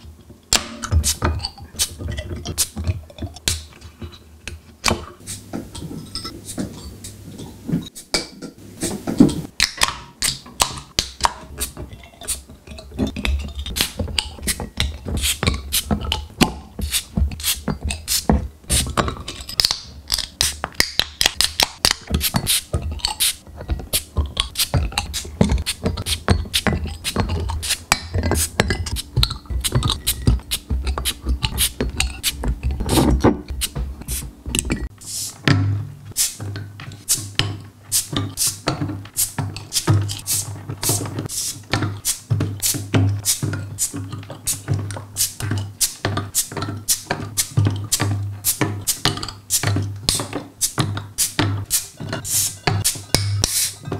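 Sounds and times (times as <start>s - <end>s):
low steady hum: 21.8s - 37.0s.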